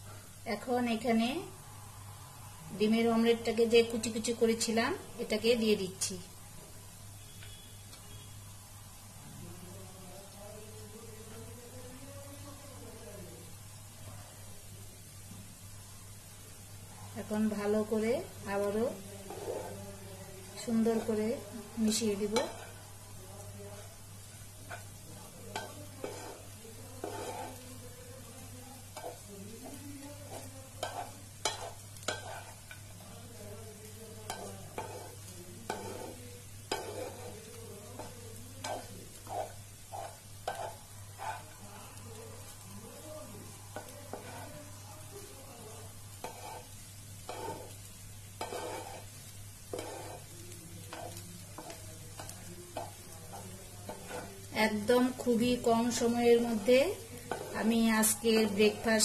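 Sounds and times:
food sizzling: 0.0s - 59.0s
spatula scraping a frying pan: 18.6s - 20.0s, 20.6s - 22.9s, 23.8s - 27.9s, 28.8s - 33.3s, 34.2s - 41.7s, 43.7s - 44.8s, 45.8s - 59.0s.

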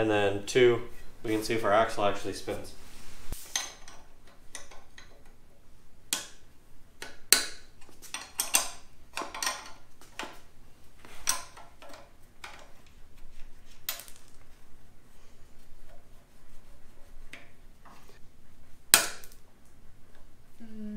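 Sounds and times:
wrench clinking on metal: 8.1s - 9.8s.

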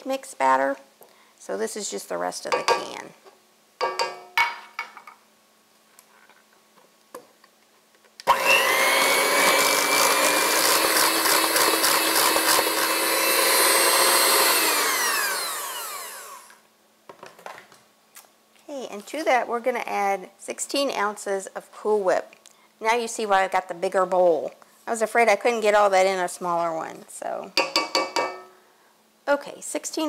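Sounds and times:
electric hand mixer whining: 8.3s - 16.6s.

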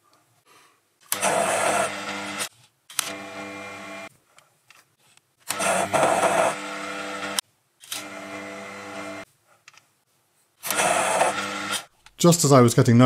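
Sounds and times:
lathe running: 1.1s - 4.1s, 5.5s - 7.4s, 8.0s - 9.2s, 10.6s - 11.9s.

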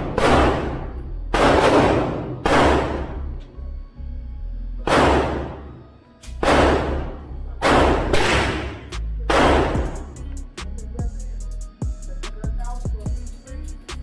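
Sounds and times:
rifle shots echoing: 0.0s - 3.2s, 4.8s - 5.8s, 6.4s - 10.1s
background music with bass: 0.0s - 5.5s, 6.2s - 14.0s.

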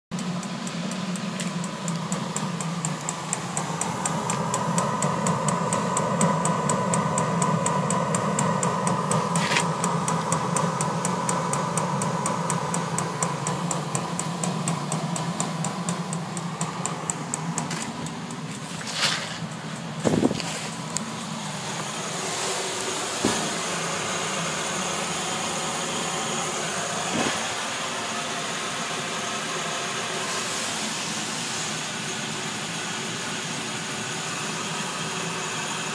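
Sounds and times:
rapid pump ticking: 0.1s - 22.0s
heater blower and burner hum: 0.2s - 35.9s.

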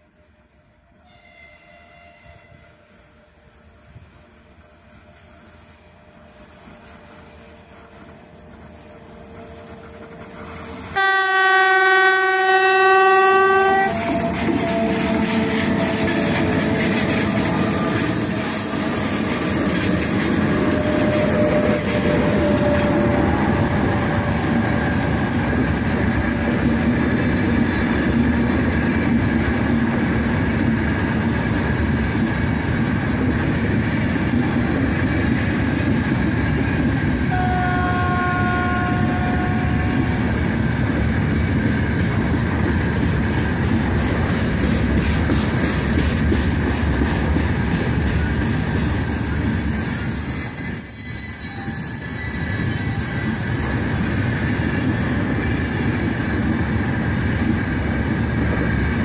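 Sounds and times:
train wheels on rails: 0.0s - 59.0s
train horn blast: 1.0s - 2.9s, 10.9s - 19.0s, 20.5s - 25.4s, 37.3s - 40.4s.

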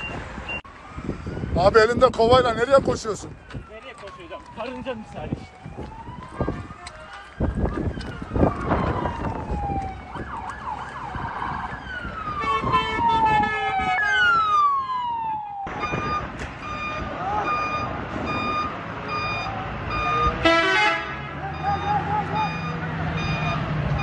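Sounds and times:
emergency sirens wailing: 0.0s - 24.0s
repeating electronic beep: 21.6s - 24.0s.

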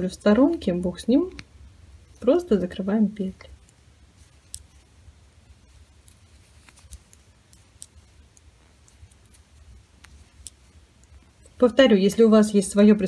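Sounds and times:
metal knitting needles clicking: 0.3s - 1.5s, 3.3s - 4.8s, 5.7s - 11.6s.

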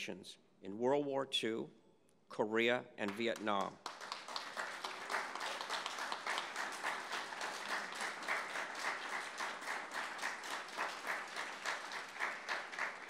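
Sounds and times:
audience applauding: 3.1s - 13.0s
close individual claps: 3.1s - 13.0s.

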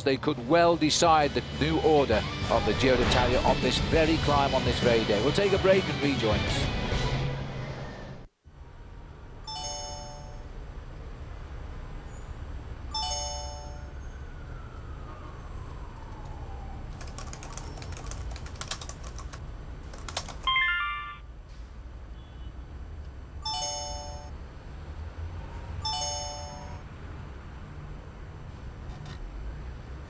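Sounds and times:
laptop keyboard typing: 16.9s - 20.6s
rising message chime: 20.5s - 21.2s.

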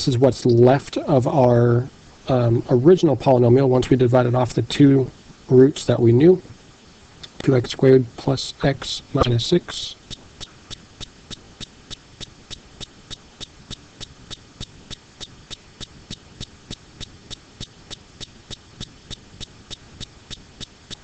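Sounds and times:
faint background hiss: 0.0s - 21.0s
steady ticking: 9.2s - 21.0s.

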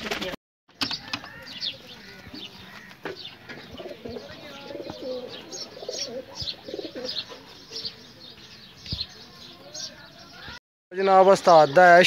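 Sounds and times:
pigeons cooing: 1.0s - 8.2s.

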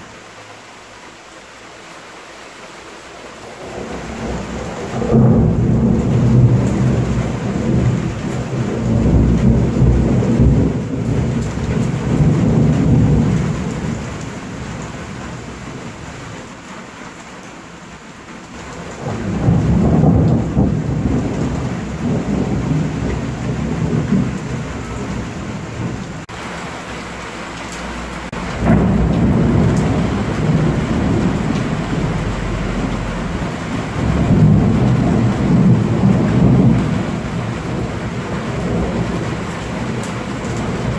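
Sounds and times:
steady rain: 0.0s - 40.9s
rolling thunder rumbles: 3.6s - 16.2s, 18.6s - 26.6s, 28.2s - 40.9s.

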